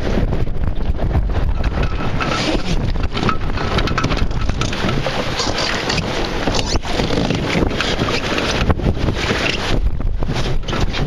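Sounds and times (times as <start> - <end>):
water slapping against hull: 0.0 - 11.0
wind buffeting microphone: 0.0 - 11.0.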